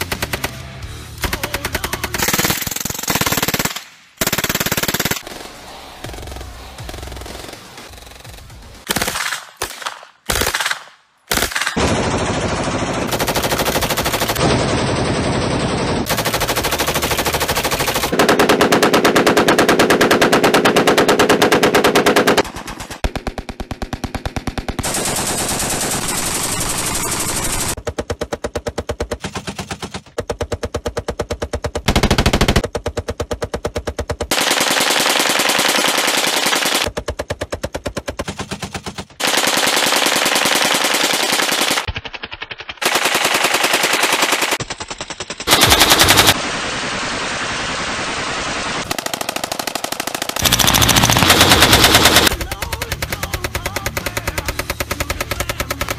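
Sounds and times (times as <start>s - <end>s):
machine gun bursts: 24.0s - 27.8s, 31.8s - 32.6s, 34.3s - 36.9s, 38.2s - 46.4s, 48.2s - 55.9s.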